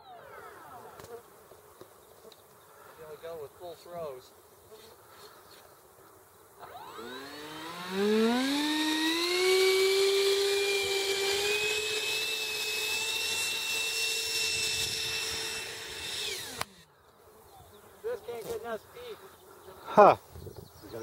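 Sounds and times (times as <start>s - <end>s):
electric ducted fan whine: 6.6s - 16.8s.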